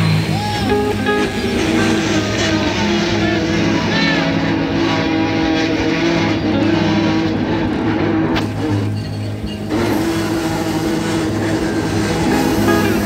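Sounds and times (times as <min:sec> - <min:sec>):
boat engine drone: 0:00.0 - 0:13.0.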